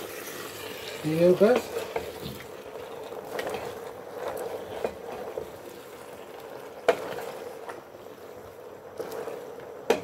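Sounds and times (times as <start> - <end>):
stir-fry sizzling in a metal pot: 0.0 - 10.0.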